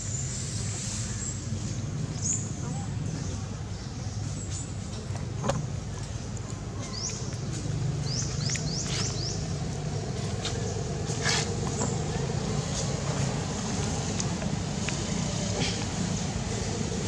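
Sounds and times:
low outdoor rumble: 0:00.0 - 0:17.0
bird chirping: 0:06.8 - 0:09.9.

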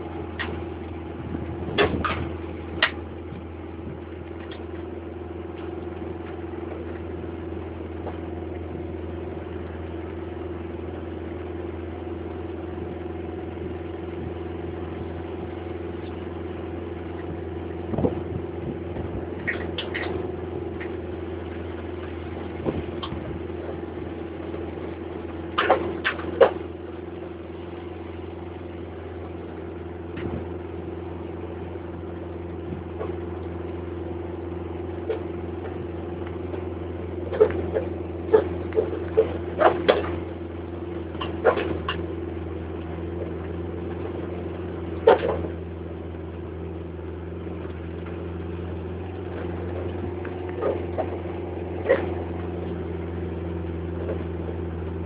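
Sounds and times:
vehicle engine humming: 0:00.0 - 0:55.0
sharp rattles and knocks: 0:37.3 - 0:40.4, 0:41.0 - 0:42.2.

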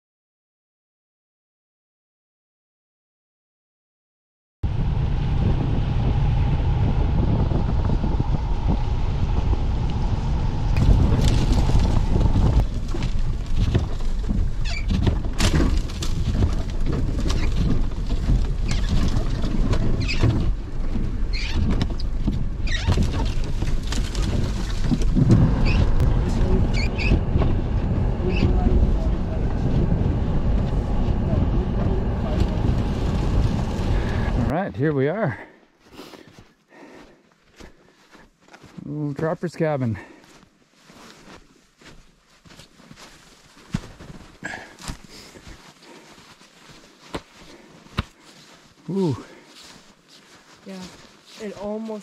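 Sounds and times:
engine and tire rumble: 0:04.6 - 0:34.6
branches scraping a vehicle: 0:07.4 - 0:36.4, 0:39.4 - 0:52.0.

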